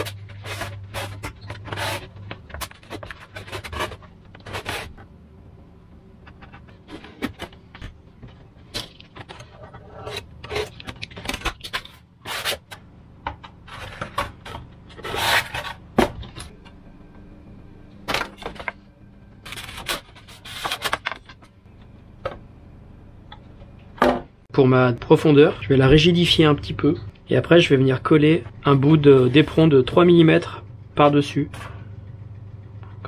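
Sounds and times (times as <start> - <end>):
foam rubbing and scraping: 0.0 - 5.0, 9.3 - 10.8, 14.9 - 15.8.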